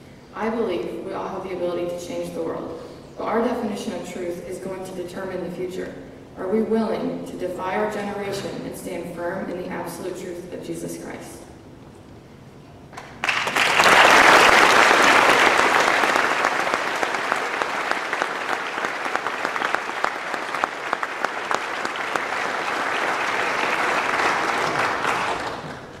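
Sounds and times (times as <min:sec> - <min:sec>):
audience applauding: 0:13.0 - 0:26.0.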